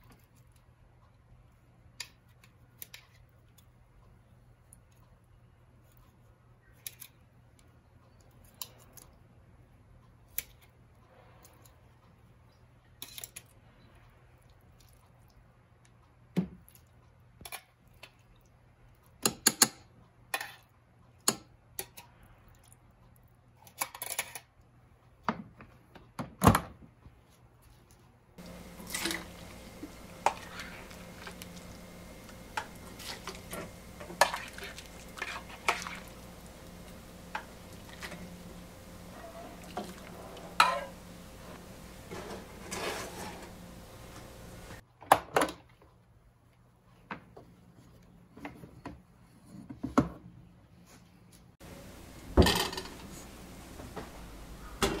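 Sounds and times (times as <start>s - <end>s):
steady background hum: 28.1s - 44.8s, 51.3s - 55.0s
steel bowls clattering: 28.4s - 44.8s, 51.7s - 53.8s
utensils clacking and clinking: 28.4s - 44.8s, 51.6s - 55.0s.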